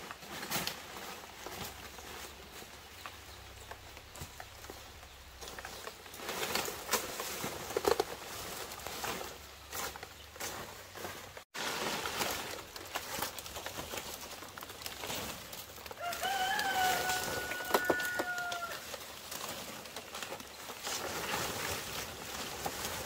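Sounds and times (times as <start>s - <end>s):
rooster crowing: 16.0s - 18.9s.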